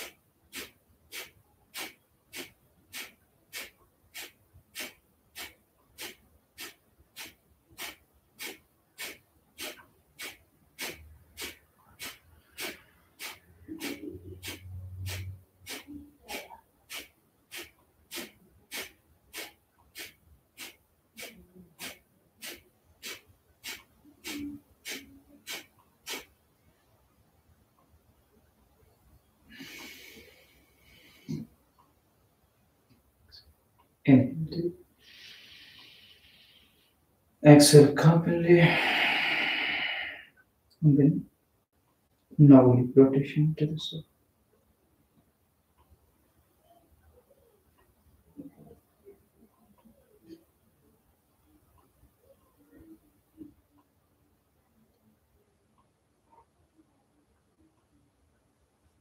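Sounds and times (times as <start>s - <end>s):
forceful nasal exhalations: 0.0s - 26.4s, 29.5s - 31.5s, 34.9s - 37.0s, 38.5s - 40.4s.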